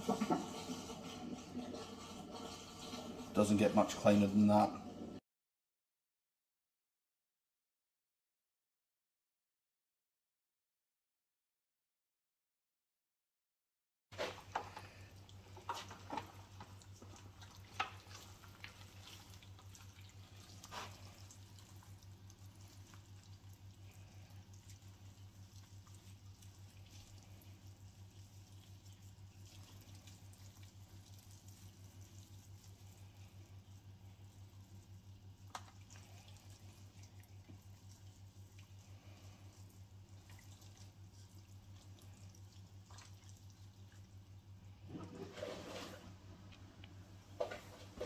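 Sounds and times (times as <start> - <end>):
wet squelching of meat: 14.2 - 45.9.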